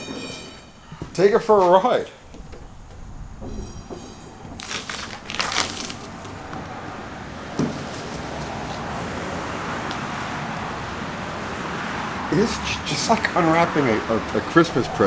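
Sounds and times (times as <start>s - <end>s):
masking tape peeling: 4.4s - 6.9s.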